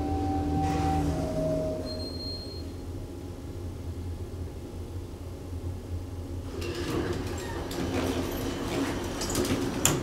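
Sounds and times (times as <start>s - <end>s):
elevator doors sliding open: 0.0s - 2.8s, 6.5s - 10.0s
elevator car humming: 0.0s - 10.0s.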